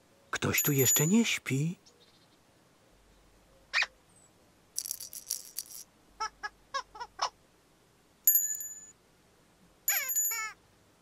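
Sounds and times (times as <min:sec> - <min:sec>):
high rattling: 0:04.8 - 0:05.9
ringing bell-like chime: 0:08.3 - 0:08.9, 0:09.9 - 0:10.6.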